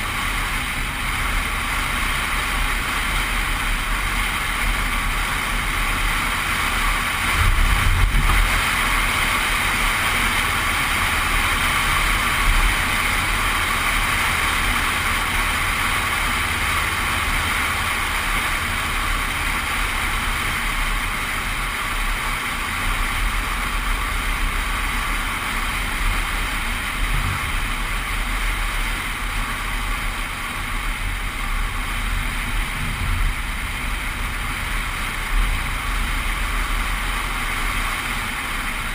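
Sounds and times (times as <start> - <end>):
car engine and tyre noise: 0.0 - 38.9
wind rumbling on microphone: 7.1 - 9.3, 25.7 - 37.3.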